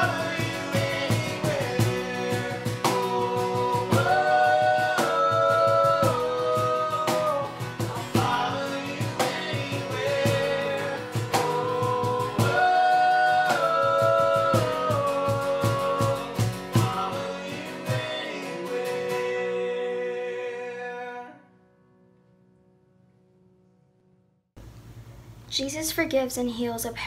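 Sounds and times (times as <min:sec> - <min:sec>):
voices singing long notes: 0:00.0 - 0:21.2
strummed guitar: 0:00.0 - 0:22.0.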